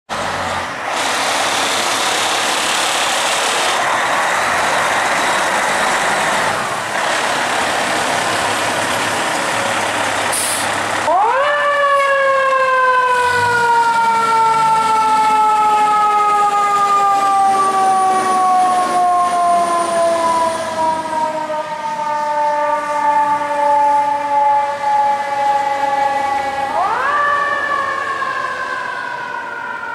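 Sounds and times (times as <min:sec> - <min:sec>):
fire truck siren: 0:00.1 - 0:29.9
brief hiss: 0:10.3 - 0:10.7.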